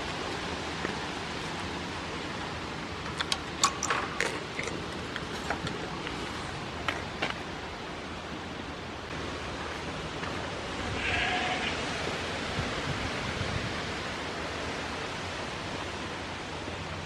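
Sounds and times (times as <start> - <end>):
goats crunching treats: 3.1 - 7.4.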